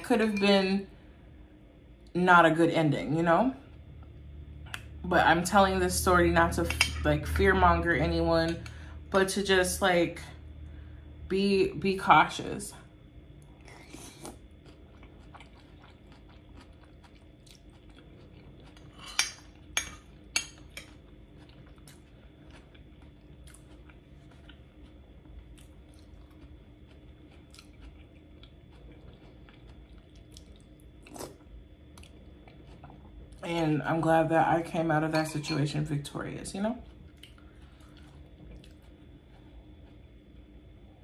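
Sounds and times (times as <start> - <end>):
chewing noodles: 13.4 - 19.7, 20.6 - 33.4, 36.8 - 40.4.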